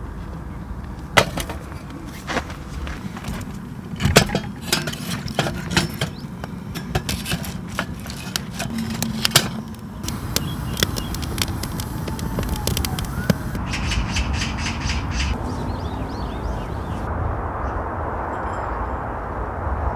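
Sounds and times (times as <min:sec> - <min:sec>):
wooden sticks clacking: 0:03.3 - 0:13.6
kindling crackling and popping: 0:03.4 - 0:13.6
low rumble: 0:07.9 - 0:19.9.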